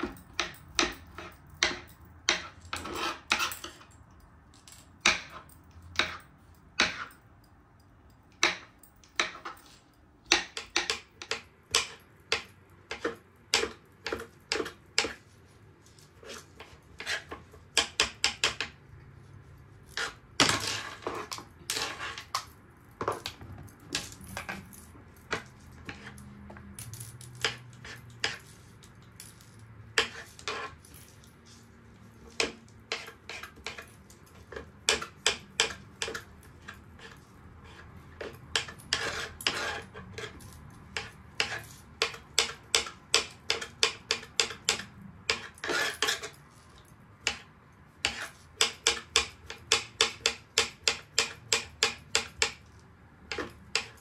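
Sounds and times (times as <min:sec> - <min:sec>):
knife scraping: 0:00.0 - 0:04.0, 0:11.8 - 0:18.7, 0:19.3 - 0:22.5, 0:25.3 - 0:26.5, 0:27.4 - 0:29.4, 0:30.0 - 0:49.6.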